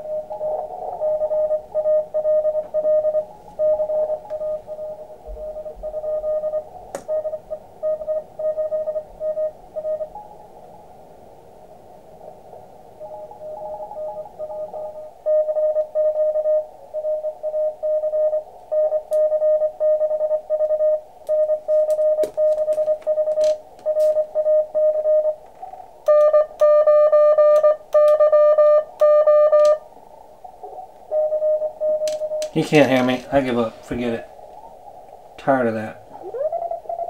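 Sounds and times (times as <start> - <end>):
morse code tones: 0.0 - 10.3, 13.0 - 25.4, 26.1 - 29.8, 31.1 - 34.2.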